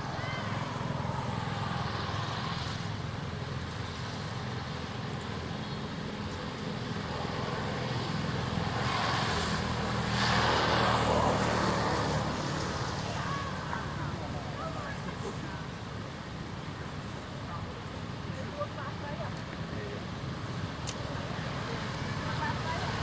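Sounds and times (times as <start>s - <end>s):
traffic engine hum: 0.0s - 23.0s
vehicle passing: 7.0s - 14.8s.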